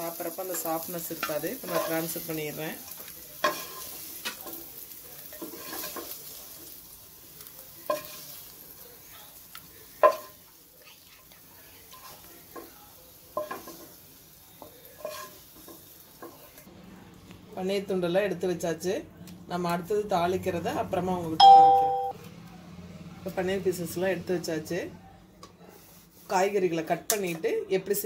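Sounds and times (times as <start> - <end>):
faint oil sizzle: 0.0 - 17.3.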